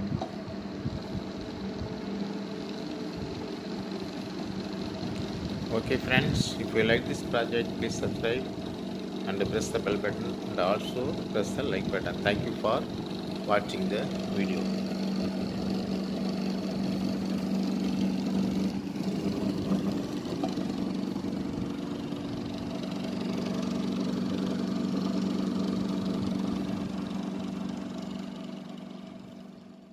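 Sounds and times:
electric motor humming: 0.0s - 29.6s.

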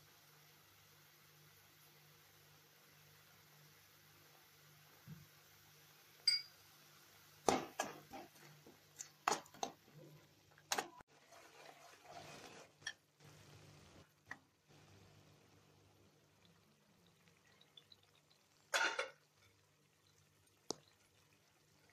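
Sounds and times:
metal ladle scraping a pan: 11.2s - 13.0s.

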